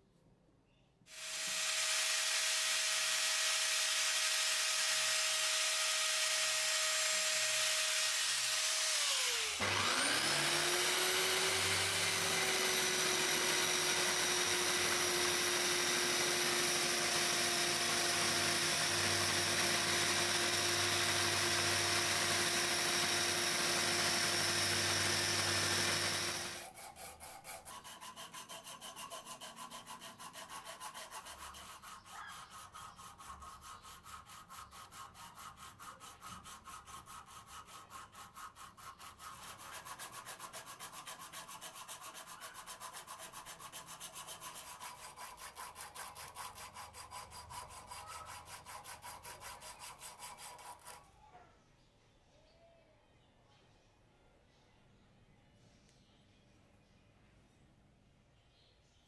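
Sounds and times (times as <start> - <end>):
electric belt sander grinding steel: 1.1 - 26.8
abrasive strip rubbing on metal: 26.5 - 51.1.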